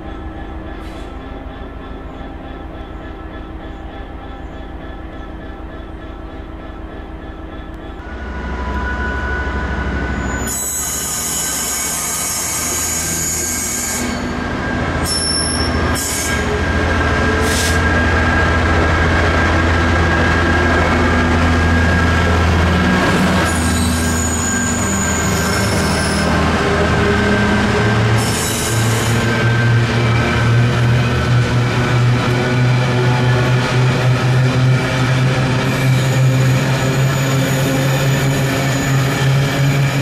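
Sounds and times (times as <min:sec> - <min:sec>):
diesel locomotive engine drone: 0:00.0 - 0:40.0
high-pitched wheel squeal: 0:08.1 - 0:16.6, 0:23.2 - 0:26.4.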